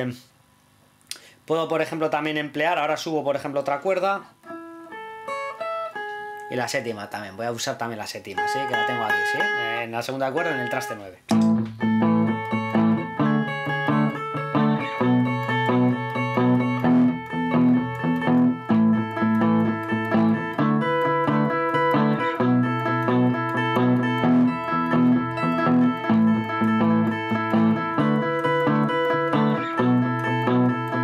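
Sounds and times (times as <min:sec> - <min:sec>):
palm-muted rhythm guitar: 0:01.1 - 0:31.0
clean electric guitar melody: 0:04.4 - 0:06.6, 0:08.4 - 0:31.0.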